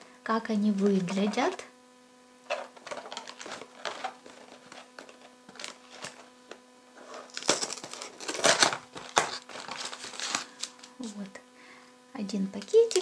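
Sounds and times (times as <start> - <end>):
cardboard box rustling: 2.5 - 10.8
cardboard flap scraping open: 2.5 - 10.8.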